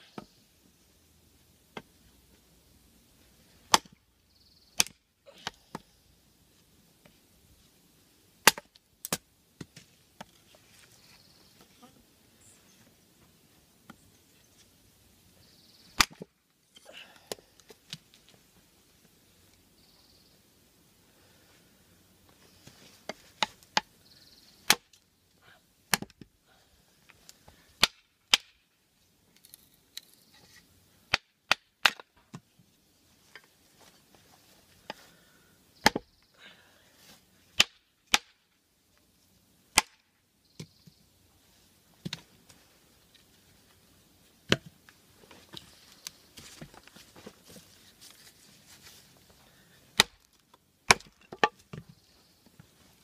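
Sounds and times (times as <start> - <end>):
blade chopping wood: 3.7 - 4.0, 4.8 - 5.8, 8.4 - 9.8, 16.0 - 16.3, 25.9 - 26.3, 35.8 - 36.0, 37.6 - 38.3, 50.0 - 50.3, 50.9 - 51.6.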